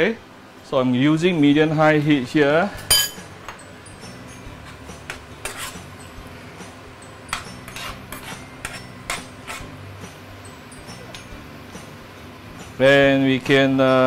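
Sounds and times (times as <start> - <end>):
metal spoon clinking on pan: 2.9 - 3.2.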